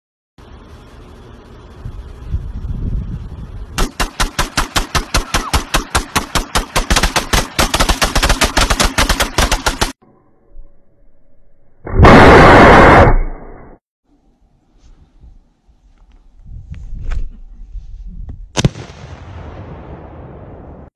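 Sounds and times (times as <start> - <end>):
automatic rifles firing bursts: 3.8 - 10.0.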